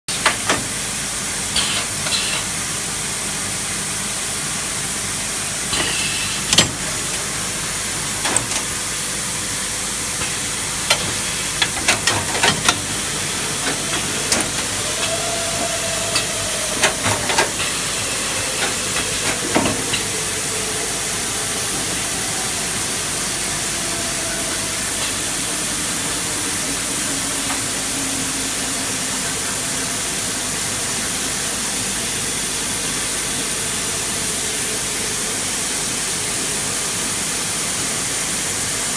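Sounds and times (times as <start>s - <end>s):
machine hissing: 0.2s - 3.0s, 3.6s - 31.4s
mechanism clicks and knocks: 6.5s - 6.8s.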